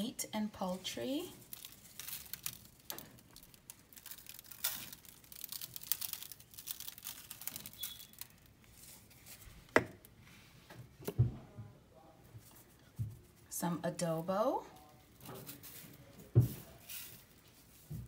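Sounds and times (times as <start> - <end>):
foil crinkling: 0.6 - 10.1, 14.7 - 18.0
seasoning shaker rasping: 16.5 - 17.9.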